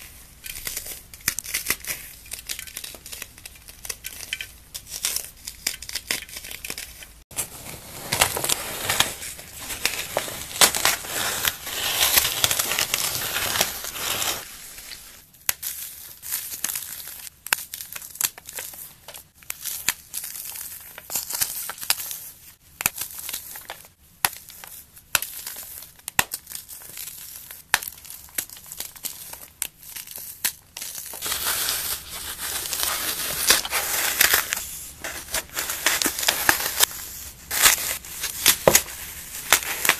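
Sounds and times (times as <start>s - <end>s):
foam crunching by hand: 4.8s - 15.2s, 30.8s - 39.9s.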